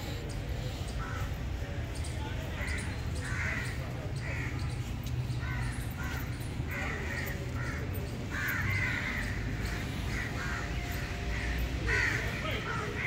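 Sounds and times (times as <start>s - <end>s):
crows cawing: 0.6s - 1.7s, 2.4s - 13.0s.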